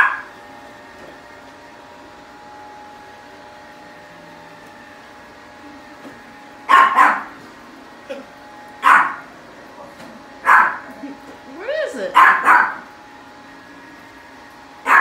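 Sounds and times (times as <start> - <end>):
small dog barking: 0.0 - 0.3, 6.7 - 7.4, 8.8 - 9.3, 10.4 - 10.9, 12.1 - 12.8
robotic vacuum humming: 0.0 - 15.0.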